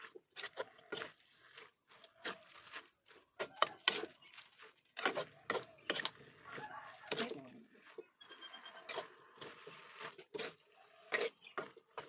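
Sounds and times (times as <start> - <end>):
spatula scraping metal wok: 3.8 - 12.0.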